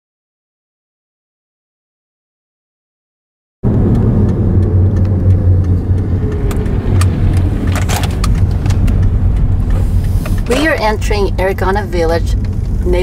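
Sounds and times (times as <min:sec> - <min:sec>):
car engine and road rumble: 0:03.6 - 0:13.0.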